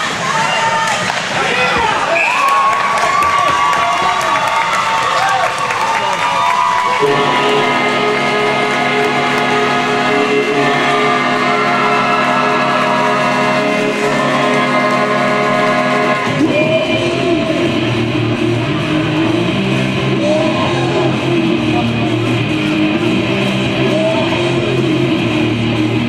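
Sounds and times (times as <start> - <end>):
person singing: 7.0 - 26.0.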